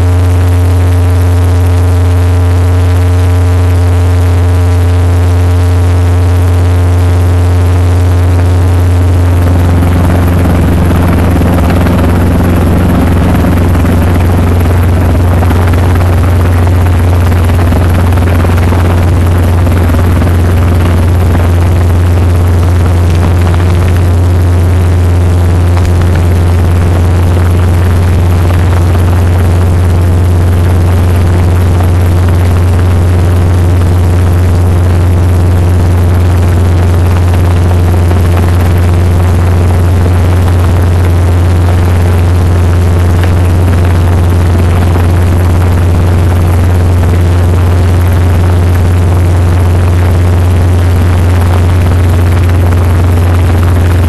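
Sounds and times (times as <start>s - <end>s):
helicopter engine and rotor drone: 0.0s - 54.0s.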